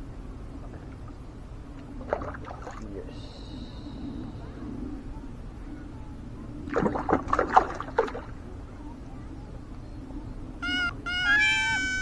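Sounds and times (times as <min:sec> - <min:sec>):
fish splashing at water surface: 0:06.6 - 0:08.4
high steady-pitched call: 0:10.6 - 0:12.0.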